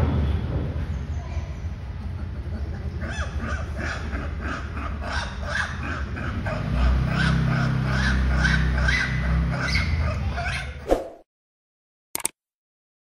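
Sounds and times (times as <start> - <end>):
harsh animal calls: 2.1 - 10.8.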